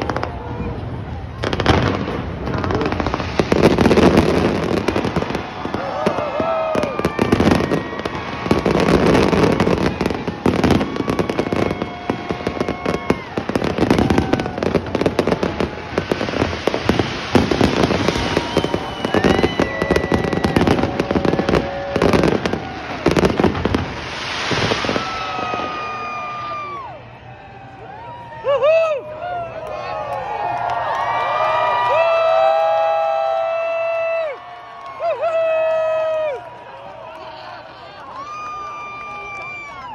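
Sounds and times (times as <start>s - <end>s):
fireworks bangs and crackling: 0.0s - 27.0s
spectators whooping: 0.0s - 39.9s.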